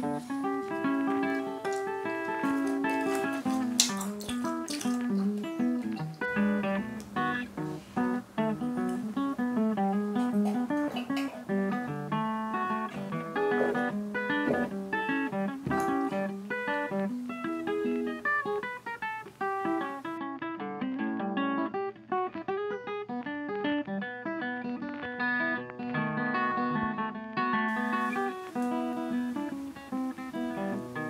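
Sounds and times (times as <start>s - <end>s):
guitar plucked melody: 0.0s - 31.0s.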